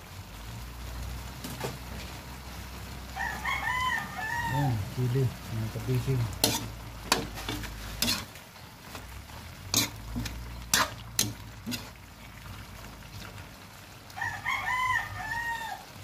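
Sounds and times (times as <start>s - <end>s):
faint simmer: 0.0s - 16.0s
rooster crowing: 3.1s - 4.8s, 14.1s - 16.0s
metal spatula scraping wok: 5.4s - 12.2s.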